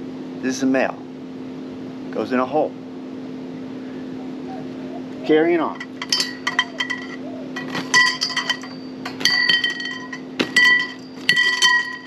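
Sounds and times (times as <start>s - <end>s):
metal poles clinking: 5.6s - 12.0s.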